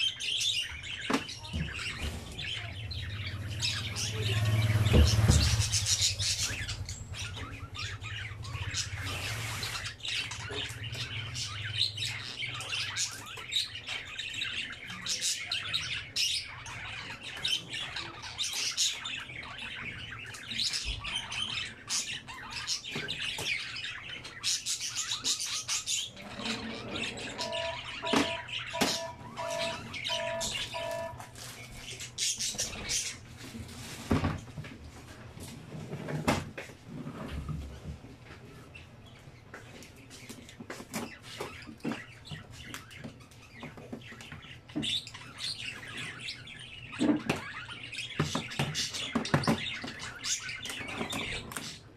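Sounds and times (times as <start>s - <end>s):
birds chirping and squawking: 0.0s - 51.9s
short beeps: 27.4s - 31.3s.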